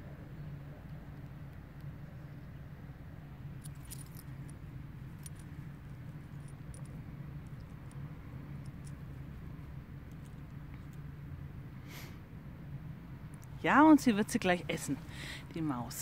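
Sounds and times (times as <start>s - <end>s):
low background hum: 0.0s - 16.0s
metal tag and clip jingling: 3.6s - 11.1s.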